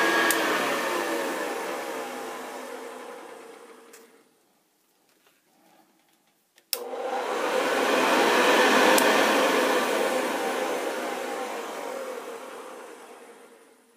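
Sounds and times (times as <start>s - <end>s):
vacuum cleaner motor whirring: 0.0s - 4.3s, 6.8s - 13.9s
vacuum cleaner switch click: 0.1s - 0.6s, 6.7s - 7.2s, 8.4s - 9.4s.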